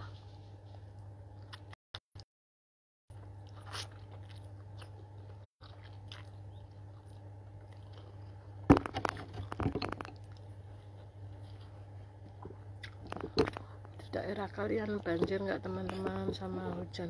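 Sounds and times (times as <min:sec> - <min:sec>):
person chewing and slurping noodles: 0:03.1 - 0:08.6
steady low hum: 0:03.1 - 0:17.0.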